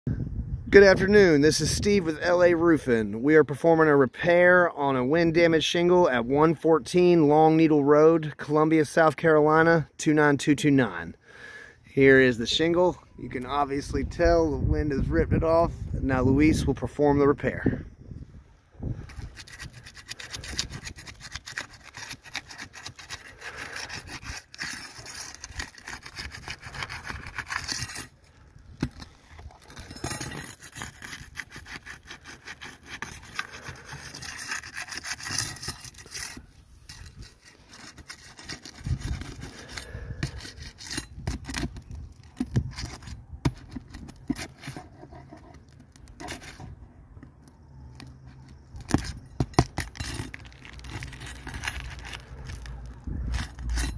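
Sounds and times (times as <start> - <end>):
pry bar scraping under shingles: 18.8 - 53.9.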